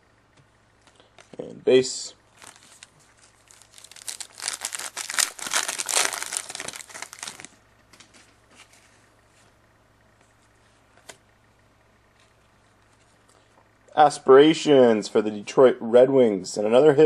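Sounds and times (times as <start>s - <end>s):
wrapper crackling: 2.3s - 7.6s.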